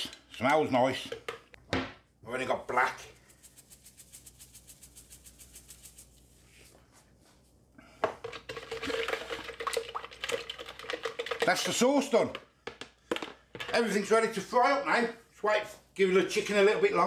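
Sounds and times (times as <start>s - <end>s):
spoon scraping plastic jug: 8.1s - 12.3s.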